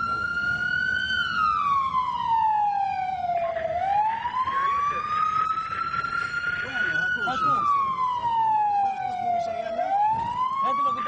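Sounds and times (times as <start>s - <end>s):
ambulance siren wailing: 0.0s - 11.0s
engine and road noise: 0.0s - 11.0s.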